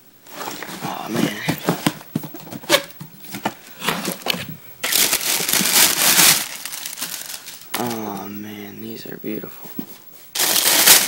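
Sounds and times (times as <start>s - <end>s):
tissue paper crinkling: 3.4s - 8.2s, 10.4s - 11.0s.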